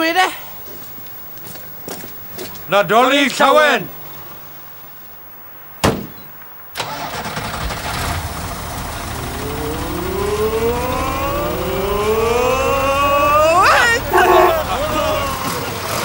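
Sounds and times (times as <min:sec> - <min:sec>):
diesel engine starting and revving: 0:06.8 - 0:16.0.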